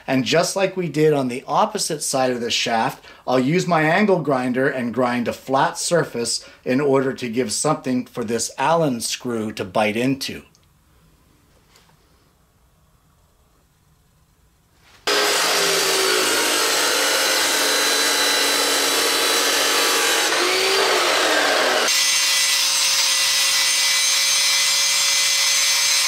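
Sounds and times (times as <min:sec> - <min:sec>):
angle grinder grinding metal: 0:15.1 - 0:26.0
chop saw cutting steel rod: 0:15.1 - 0:26.0
steady grinder whine: 0:15.1 - 0:26.0.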